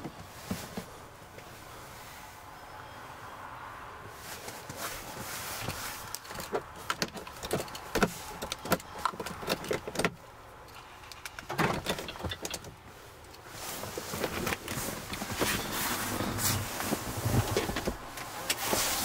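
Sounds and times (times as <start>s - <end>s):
clicks and knocks inside car: 5.6s - 10.2s, 11.2s - 12.8s, 13.8s - 18.9s.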